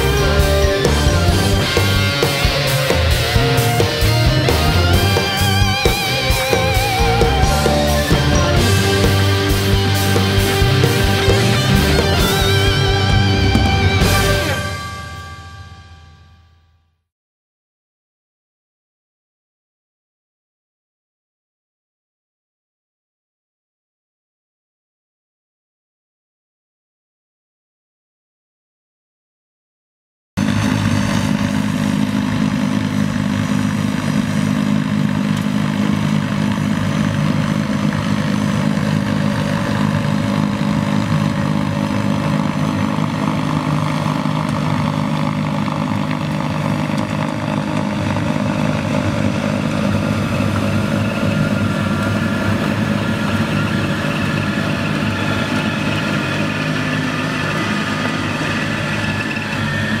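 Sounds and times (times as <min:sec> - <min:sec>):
snow blower engine drone: 0:00.0 - 0:16.5, 0:30.4 - 1:00.0
high machine whine: 0:00.0 - 0:16.7, 0:30.4 - 1:00.0.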